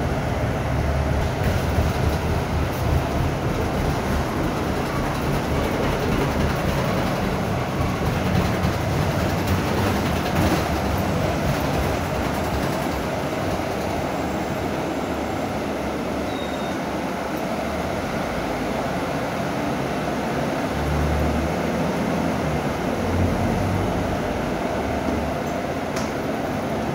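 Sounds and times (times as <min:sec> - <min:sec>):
diesel engine drone: 0:00.0 - 0:26.9
road noise: 0:00.0 - 0:26.9
cabin rattles: 0:01.4 - 0:14.0.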